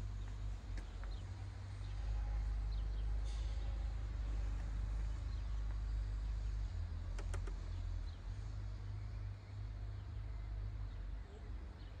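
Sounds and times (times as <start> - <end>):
light clicks: 7.1 - 7.7.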